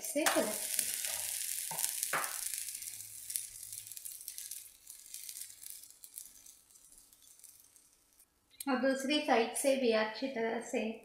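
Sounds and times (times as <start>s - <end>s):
food sizzling in a pan: 0.0s - 8.3s.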